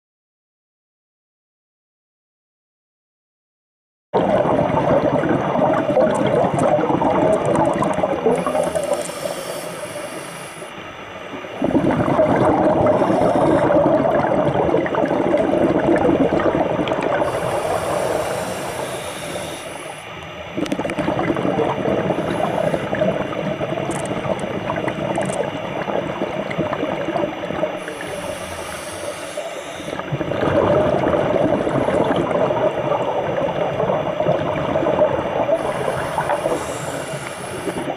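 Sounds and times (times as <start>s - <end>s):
exhaled bubbles underwater: 4.2s - 37.9s
regulator inhalation hiss: 8.2s - 10.8s, 12.8s - 13.9s, 17.1s - 20.2s, 22.0s - 23.3s, 27.8s - 30.1s, 35.5s - 37.9s.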